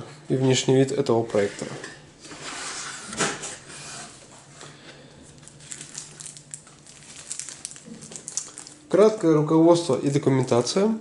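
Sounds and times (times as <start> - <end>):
plastic wrapping crinkling: 5.2 - 10.9.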